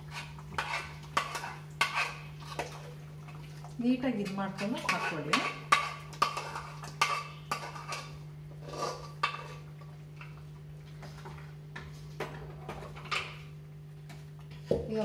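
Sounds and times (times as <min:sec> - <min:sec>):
metal spoon scraping pan: 0:00.0 - 0:02.8, 0:04.2 - 0:09.7.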